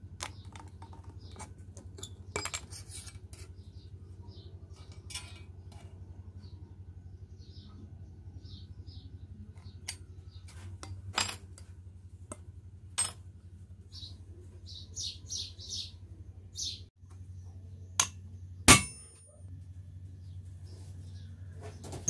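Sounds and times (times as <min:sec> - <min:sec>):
birds chirping: 0:00.0 - 0:10.7, 0:13.3 - 0:18.7
steady low hum: 0:00.0 - 0:22.0.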